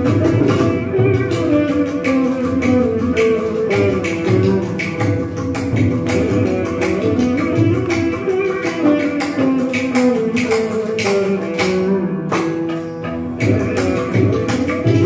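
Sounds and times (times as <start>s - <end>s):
hand drum and clay pot strokes: 0.0s - 12.8s, 13.4s - 15.0s
veena plucked notes sliding: 0.0s - 15.0s.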